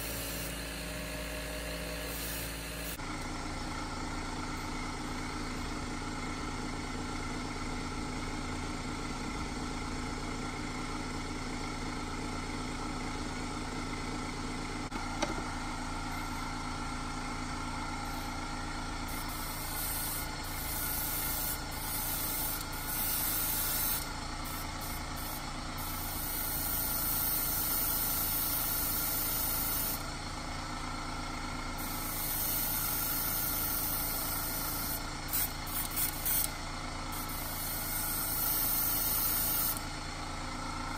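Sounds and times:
airbrush spraying hiss: 0.0s - 3.0s, 19.1s - 30.0s, 31.8s - 36.5s, 37.2s - 39.8s
small motor humming: 0.0s - 3.4s, 17.9s - 30.3s, 31.7s - 40.9s.

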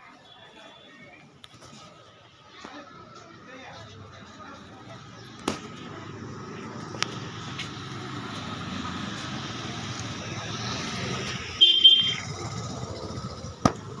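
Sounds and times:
passers-by: 0.0s - 14.0s
street traffic: 0.0s - 14.0s
high-pitched vehicle horn beep: 11.6s - 12.3s.

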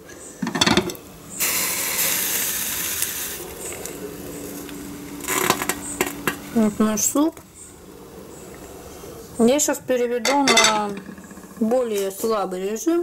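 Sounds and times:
hissing: 1.3s - 10.1s.

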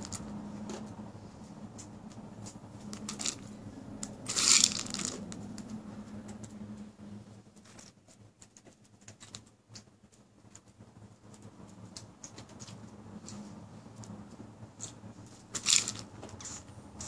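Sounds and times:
rustling crunch: 2.9s - 3.5s, 4.2s - 5.3s, 14.8s - 16.6s
dog crunching dry food: 2.9s - 5.4s, 15.6s - 16.1s.

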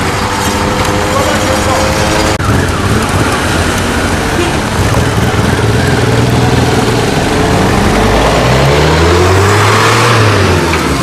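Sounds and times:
engine accelerating: 0.0s - 11.0s.

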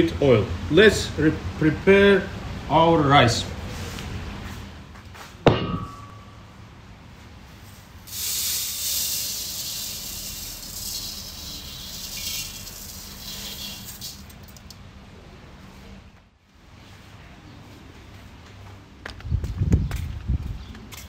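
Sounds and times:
rice grains being poured: 8.1s - 14.3s.

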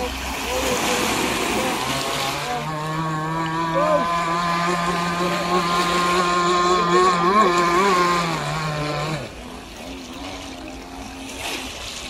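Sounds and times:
model boat engine at high revs: 0.0s - 12.0s.

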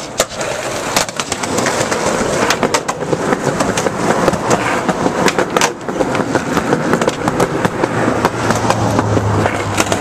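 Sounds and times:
skateboard wheels rolling on concrete: 0.0s - 10.0s.

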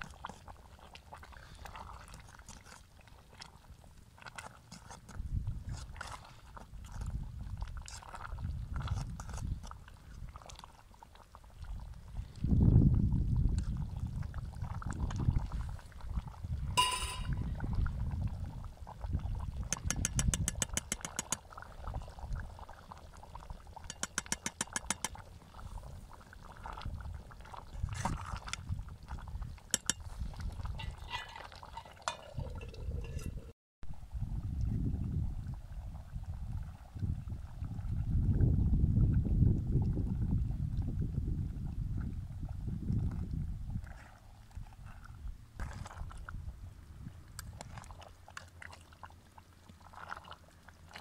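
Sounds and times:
ladle clinking against pot: 16.8s - 17.4s, 19.7s - 21.4s, 23.9s - 25.2s, 29.8s - 30.1s, 30.9s - 33.5s
metal ladle stirring a pot: 16.8s - 17.5s, 19.5s - 22.2s, 23.8s - 25.9s, 27.5s - 33.5s
rapid clicking scrapes: 19.7s - 21.4s.

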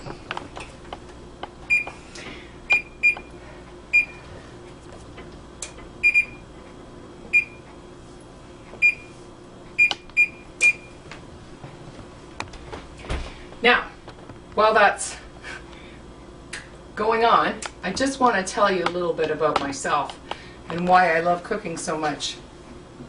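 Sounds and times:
faint steady hum: 0.0s - 23.0s
oven control panel beeps: 1.7s - 2.0s, 2.7s - 3.3s, 3.9s - 4.2s, 6.0s - 6.5s, 7.3s - 7.7s, 8.8s - 9.2s, 9.8s - 11.0s.

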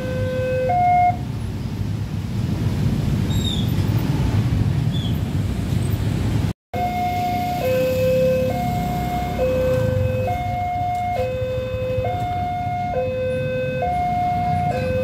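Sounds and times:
level crossing two-tone alarm: 6.8s - 15.0s.

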